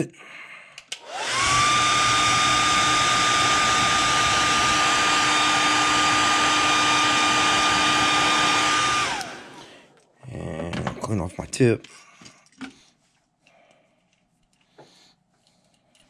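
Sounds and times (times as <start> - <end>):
hair dryer whining: 0.9 - 9.9.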